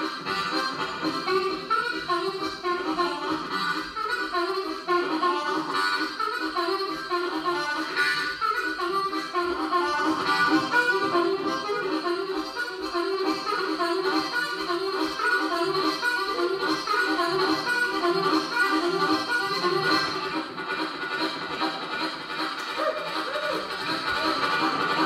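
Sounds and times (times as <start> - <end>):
harmonica chugging rhythm: 0.0 - 25.0.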